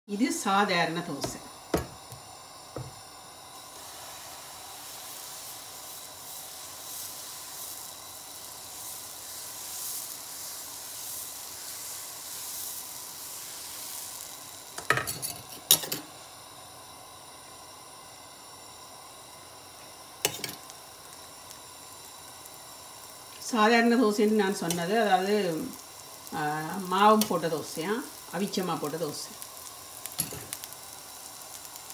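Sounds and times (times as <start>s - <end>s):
batter sizzling on hot pan: 0.1s - 31.9s
metal spoon clinking on pan: 14.8s - 16.1s, 30.2s - 30.5s.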